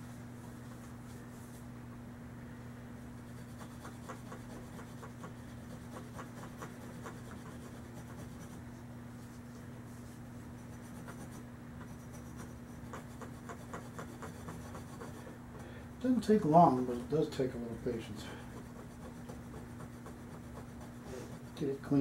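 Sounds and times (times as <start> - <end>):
scratchy rubbing on metal: 3.2 - 8.6, 10.6 - 15.4, 18.5 - 22.0.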